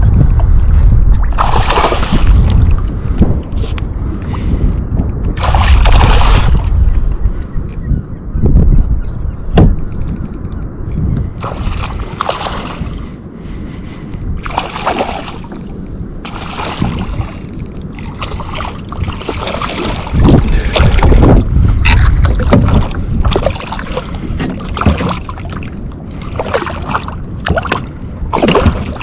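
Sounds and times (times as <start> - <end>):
water sounds from boat: 0.0 - 7.5, 11.4 - 29.0
wind rumbling on microphone: 0.0 - 29.0
knocks from kayak: 22.4 - 22.8, 24.4 - 25.2.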